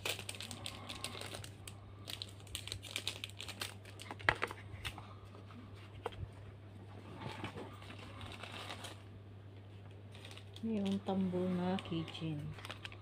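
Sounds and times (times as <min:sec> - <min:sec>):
cardboard packaging crinkling: 0:00.0 - 0:05.1, 0:07.1 - 0:09.1, 0:09.8 - 0:13.0.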